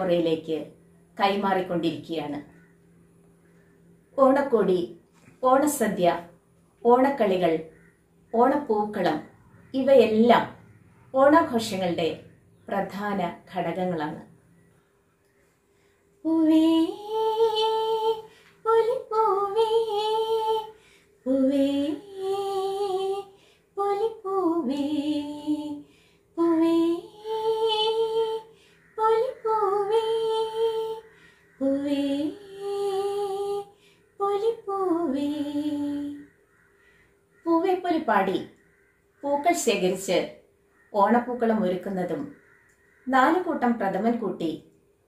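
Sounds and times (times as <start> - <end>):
woman singing unaccompanied: 0.0 - 2.6, 4.2 - 7.7, 8.3 - 14.3, 16.2 - 36.4, 37.4 - 38.5, 39.2 - 40.3.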